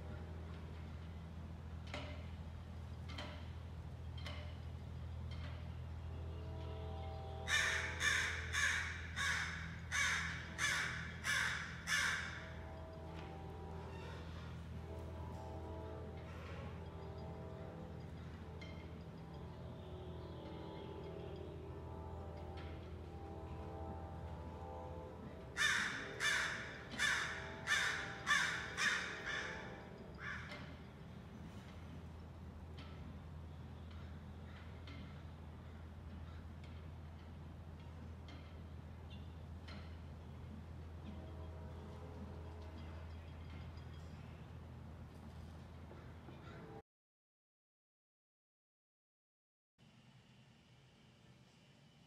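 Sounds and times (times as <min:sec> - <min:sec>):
crows cawing: 0:07.5 - 0:12.6, 0:25.6 - 0:30.6.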